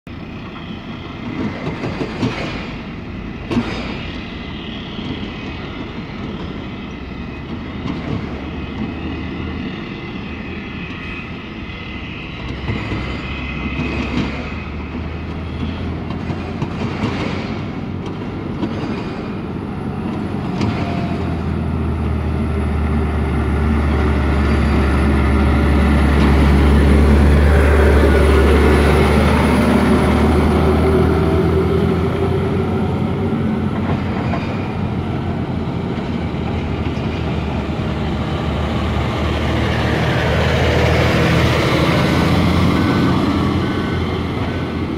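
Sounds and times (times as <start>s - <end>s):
truck diesel engine: 0.1s - 44.9s.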